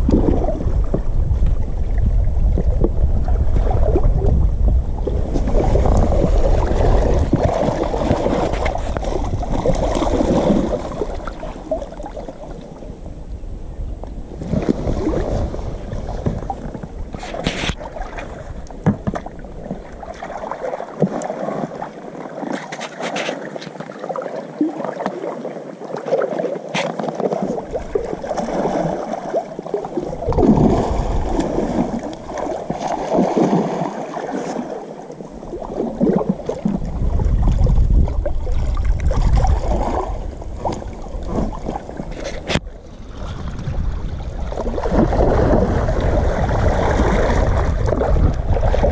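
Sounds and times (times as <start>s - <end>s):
low rumbling: 0.0s - 17.2s
water sloshing and gurgling: 0.0s - 48.9s.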